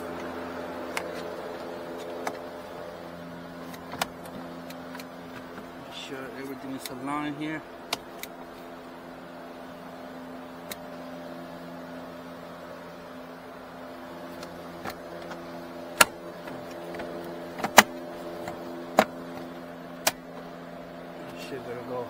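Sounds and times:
steady mechanical hum: 0.0 - 22.0
plastic trim panels clicking: 16.0 - 19.1.

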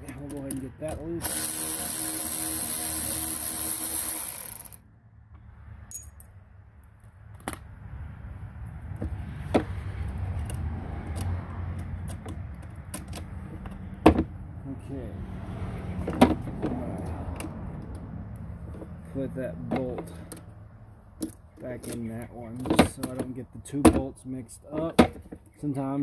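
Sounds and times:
electric ratchet running: 1.2 - 4.8.

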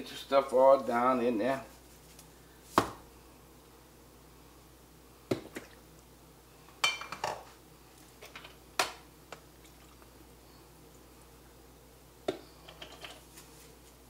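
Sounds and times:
kitchen items knocking and clinking: 12.3 - 13.3.

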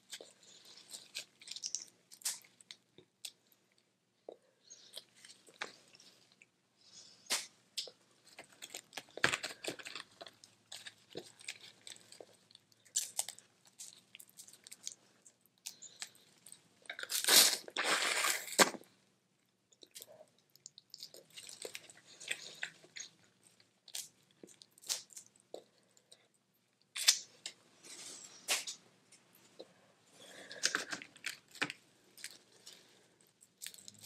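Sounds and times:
shells crackling and crunching: 0.1 - 2.5
chewing: 19.8 - 26.3.

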